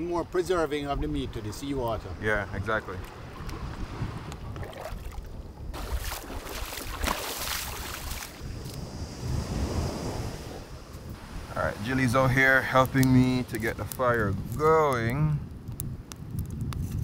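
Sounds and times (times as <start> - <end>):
wind buffeting microphone: 0.0 - 17.0
feet wading through shallow water: 3.0 - 8.4.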